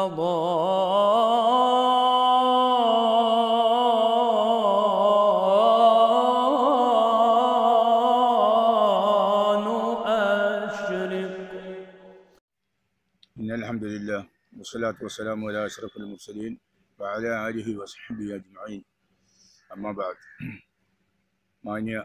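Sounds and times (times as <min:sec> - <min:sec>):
solo voice chanting: 0:00.0 - 0:12.3.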